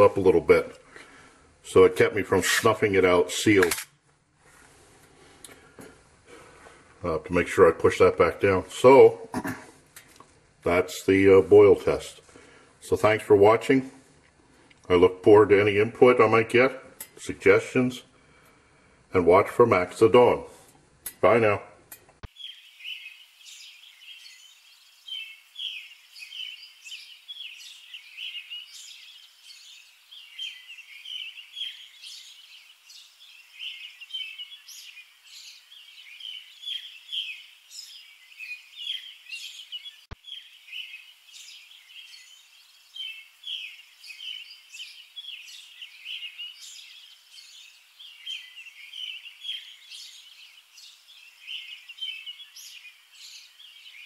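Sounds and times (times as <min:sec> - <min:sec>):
small birds chirping: 0:00.0 - 0:03.8, 0:19.2 - 0:54.0.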